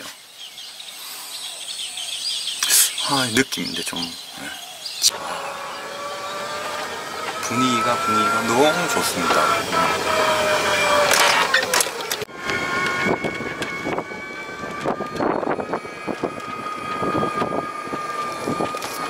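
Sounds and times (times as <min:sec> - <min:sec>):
golf cart whine: 0:04.4 - 0:19.0.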